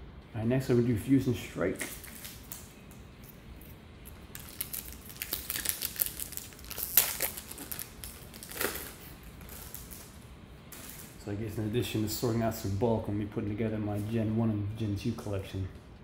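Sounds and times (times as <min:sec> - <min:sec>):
foil wrapper crinkling: 0:04.2 - 0:10.2.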